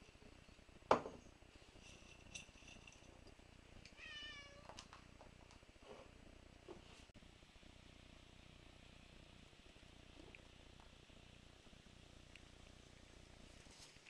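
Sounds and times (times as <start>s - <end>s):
cat meowing: 4.0s - 4.8s
faint ticks: 12.3s - 12.8s.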